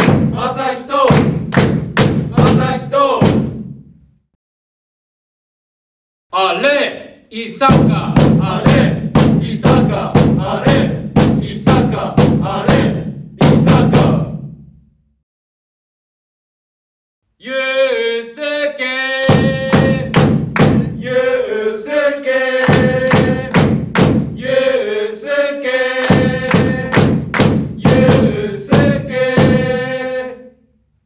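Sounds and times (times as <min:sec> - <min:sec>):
crowd chanting: 0:00.0 - 0:01.3, 0:02.3 - 0:03.2, 0:08.4 - 0:14.3, 0:17.4 - 0:23.6, 0:24.4 - 0:27.1, 0:27.8 - 0:30.5
bass drum beats: 0:00.0 - 0:04.0, 0:07.7 - 0:14.8, 0:19.2 - 0:21.2, 0:22.6 - 0:24.6, 0:26.0 - 0:29.9.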